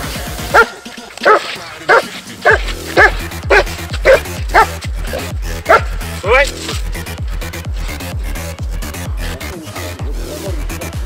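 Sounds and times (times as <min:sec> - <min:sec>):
large dog barking fast: 0:00.5 - 0:06.3.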